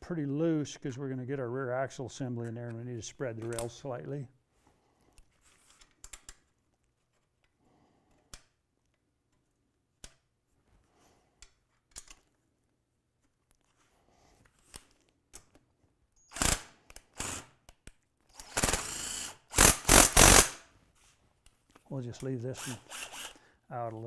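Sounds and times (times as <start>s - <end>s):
cordless power driver running: 18.4s - 20.6s, 22.6s - 23.4s.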